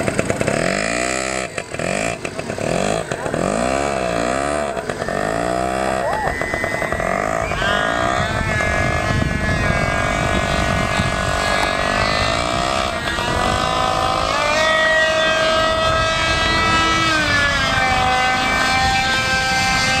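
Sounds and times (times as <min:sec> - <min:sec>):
model plane motor whining: 0:00.0 - 0:20.0.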